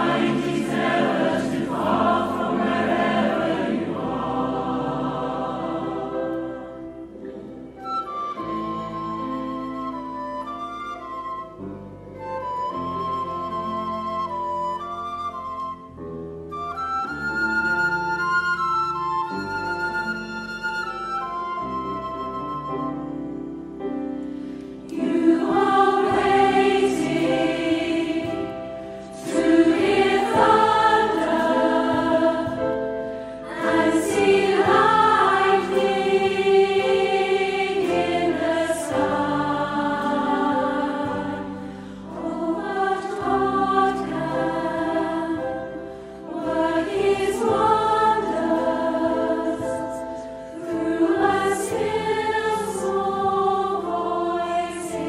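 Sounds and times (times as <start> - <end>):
choir singing a hymn: 0.0 - 10.6, 23.9 - 55.0
piano accompaniment: 0.0 - 55.0.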